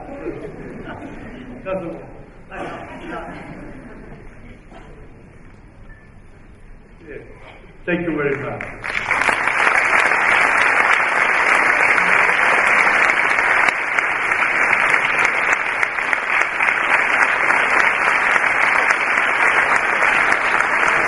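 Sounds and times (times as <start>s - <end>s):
audience applauding: 8.3s - 21.0s.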